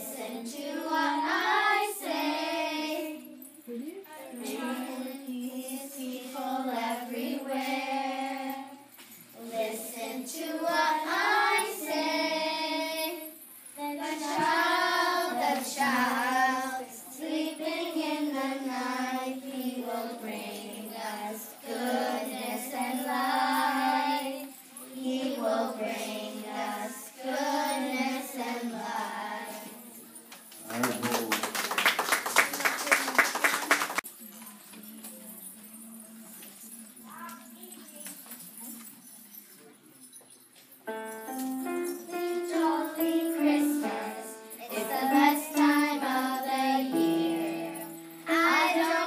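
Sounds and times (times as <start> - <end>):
girls singing a carol: 0.0 - 3.5, 4.1 - 30.0, 41.4 - 49.0.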